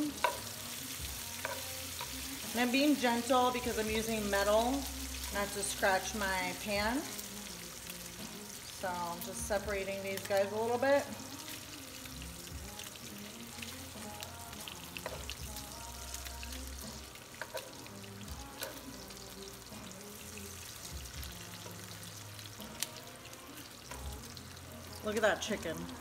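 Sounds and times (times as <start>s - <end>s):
metal tongs scraping a pan: 0.0s - 6.2s, 17.3s - 19.1s
bacon sizzling with pops: 0.0s - 26.0s.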